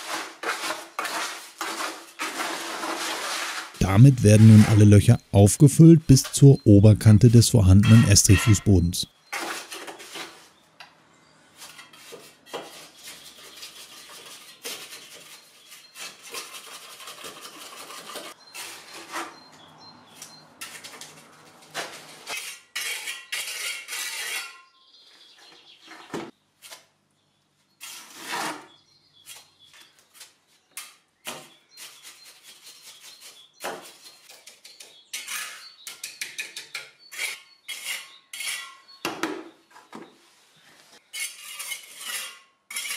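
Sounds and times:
trowel scraping and tapping concrete: 0:11.6 - 0:19.2, 0:21.8 - 0:24.6, 0:30.7 - 0:38.8, 0:41.0 - 0:42.9.

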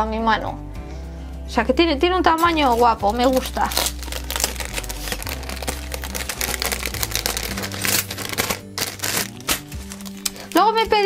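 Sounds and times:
background music: 0:00.0 - 0:11.0
plastic bag crinkling: 0:02.4 - 0:10.8.

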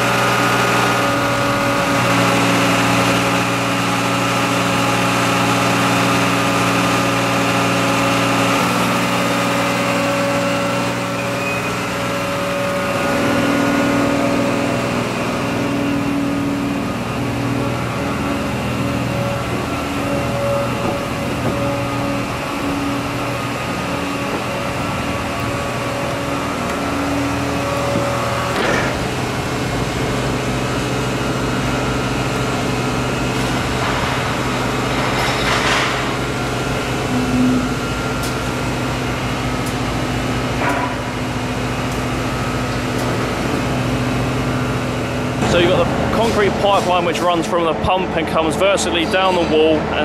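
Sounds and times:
heavy machinery drone: 0:00.0 - 0:50.0
metallic clanks: 0:27.8 - 0:29.2, 0:33.4 - 0:38.5.

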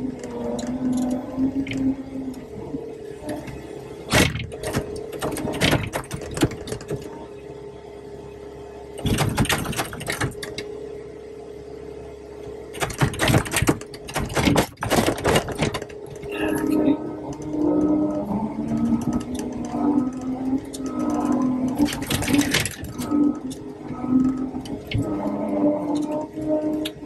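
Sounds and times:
diesel engine whine: 0:00.0 - 0:27.0.

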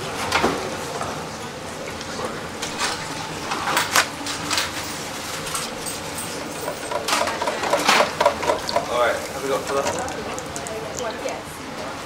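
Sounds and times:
oil bubbling in deep fryer: 0:06.5 - 0:12.0.

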